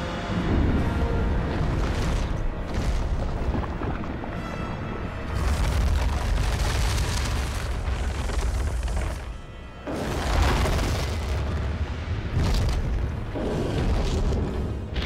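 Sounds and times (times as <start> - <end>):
orchestral music: 0.0 - 7.7.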